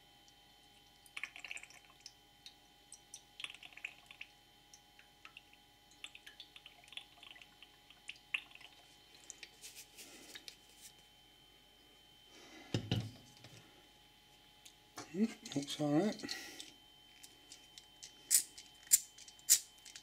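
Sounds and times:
liquid fuel dripping and splashing: 5.0 - 9.6.

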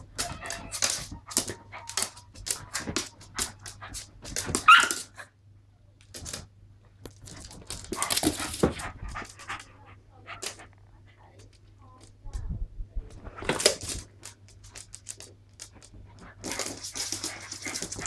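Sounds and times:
dogs scuffling: 0.0 - 5.1, 6.1 - 10.7, 13.1 - 18.0
small dogs barking and yapping: 0.2 - 5.4
claws scrabbling on wooden floor: 6.0 - 9.7, 13.2 - 18.0.

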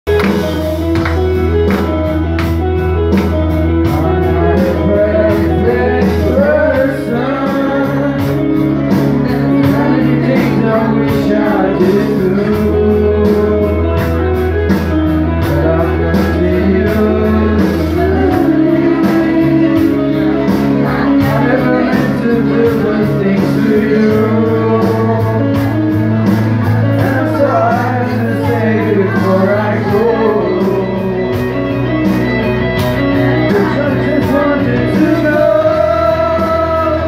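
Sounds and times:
karaoke backing track over pa: 0.1 - 37.0
men singing into microphones: 3.8 - 14.1, 15.4 - 26.1, 26.8 - 31.8, 33.4 - 37.0.

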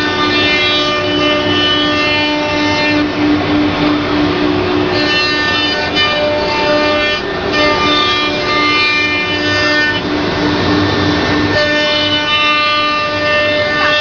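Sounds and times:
rushing noise: 2.1 - 14.0
router machine whine: 4.8 - 14.0.

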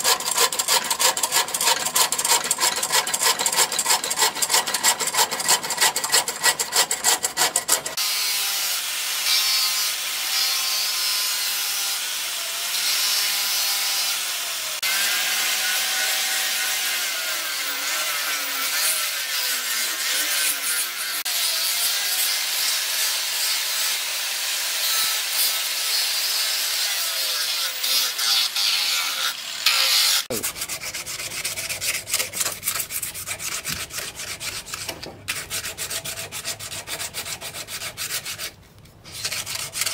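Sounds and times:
hand scraping wooden handle: 0.0 - 8.0, 30.3 - 39.9
angle grinder sanding wood: 0.0 - 39.9
sandpaper rubbing by hand: 17.4 - 21.2, 27.6 - 39.9.

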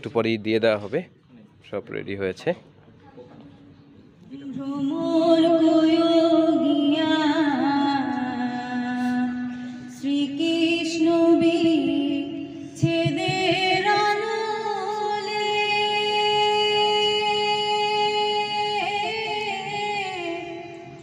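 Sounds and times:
woman singing into microphone: 4.3 - 21.0.

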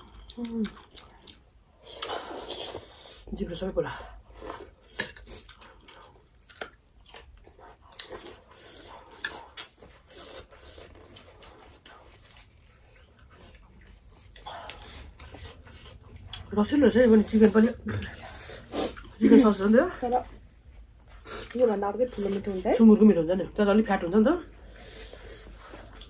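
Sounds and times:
chewing and mouth smacks: 0.0 - 2.9, 4.3 - 16.6.

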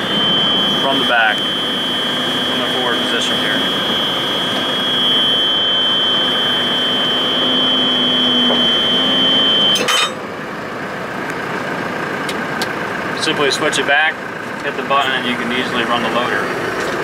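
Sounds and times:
warning buzzer beeping: 0.0 - 10.2, 14.7 - 16.5
diesel engine running: 0.0 - 17.0.

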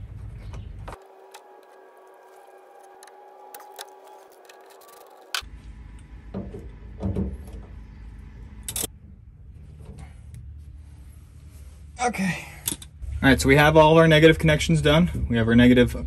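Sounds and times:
low rumbling handling noise: 0.0 - 12.0
low steady hum: 0.0 - 16.0.

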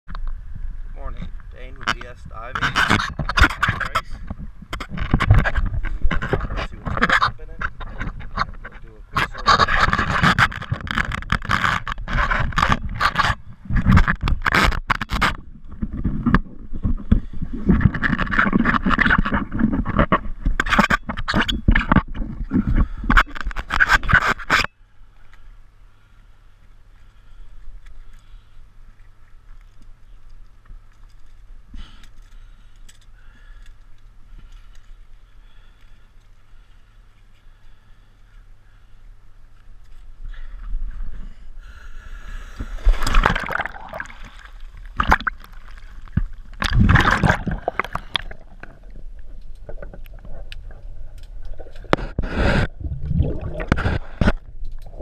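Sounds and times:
low hum with high whine: 0.1 - 55.0
diving gear rubbing against camera: 1.6 - 24.7, 42.6 - 55.0.

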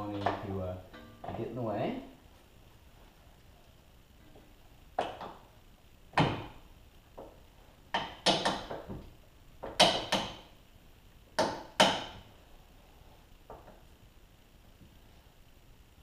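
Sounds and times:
metallic knocks and clunks: 7.9 - 10.4.

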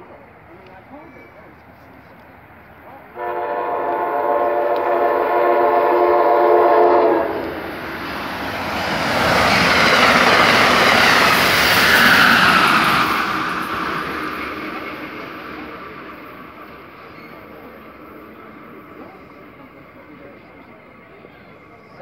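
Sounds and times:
train rushing past: 0.4 - 22.0
train horn blast: 3.2 - 7.6.

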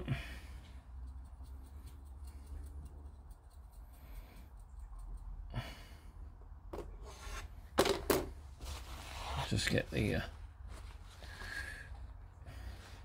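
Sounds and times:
person breathing: 0.0 - 1.1, 3.7 - 4.7, 5.4 - 6.4, 11.1 - 13.0
low steady hum: 0.0 - 13.0.

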